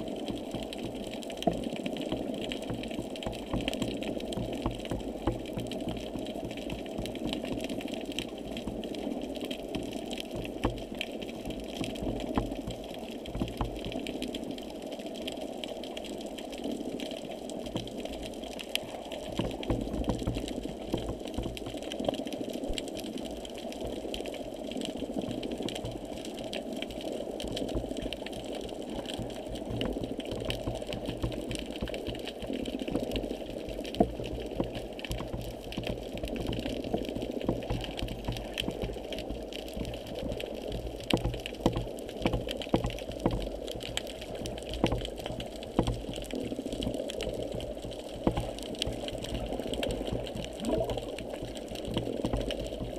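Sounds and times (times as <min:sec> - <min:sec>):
muffled underwater rushing: 0:00.0 - 0:52.9
faint clicks: 0:17.0 - 0:52.9.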